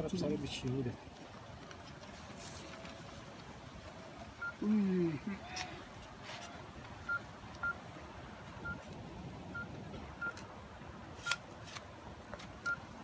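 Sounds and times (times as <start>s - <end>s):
phone keypad beeps: 9.5s - 10.4s, 12.6s - 12.8s.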